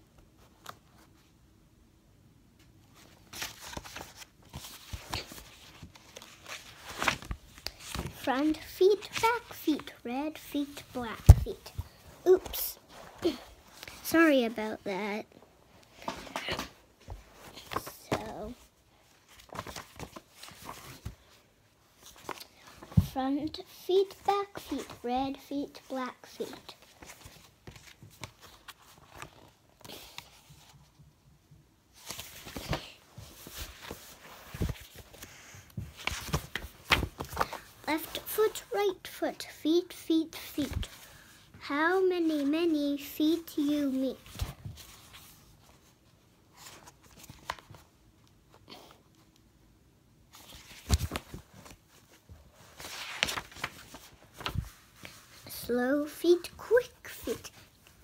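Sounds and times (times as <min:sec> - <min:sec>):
paper rustling: 0:03.0 - 0:14.6, 0:16.0 - 0:18.6, 0:19.2 - 0:21.4, 0:22.0 - 0:30.8, 0:32.0 - 0:38.8, 0:40.4 - 0:41.3, 0:42.0 - 0:45.9, 0:46.5 - 0:47.8, 0:50.3 - 0:58.0.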